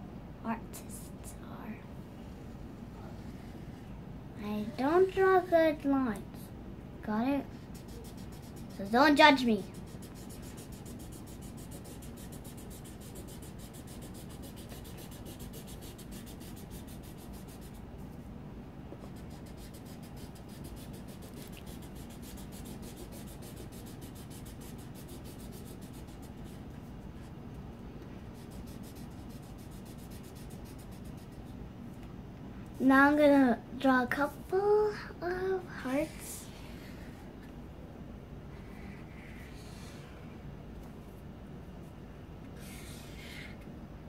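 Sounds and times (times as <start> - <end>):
marker rubbing across paper: 7.5 - 17.8, 19.0 - 27.0, 28.4 - 31.6, 42.6 - 43.5.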